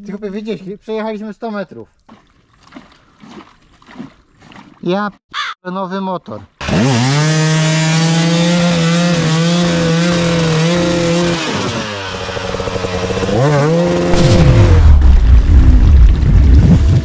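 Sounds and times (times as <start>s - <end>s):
dirt bike engine revving: 6.6s - 15.9s
loud rushing noise: 14.1s - 16.8s.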